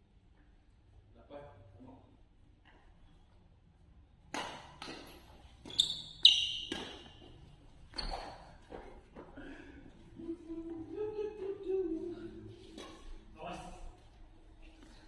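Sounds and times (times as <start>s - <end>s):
racket hitting shuttlecock: 4.3s - 7.4s
shoes squeaking on floor: 4.8s - 9.3s.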